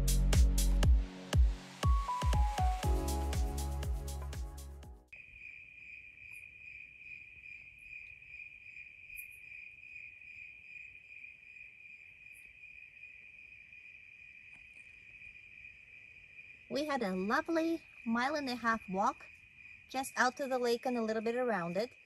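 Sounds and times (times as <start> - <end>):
background music: 0.0 - 5.1
crickets chirping: 5.1 - 22.0.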